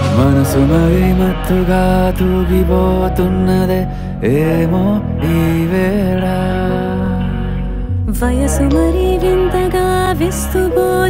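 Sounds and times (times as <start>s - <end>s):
sliding melody: 0.0s - 11.0s
sustained low bass: 0.0s - 11.0s.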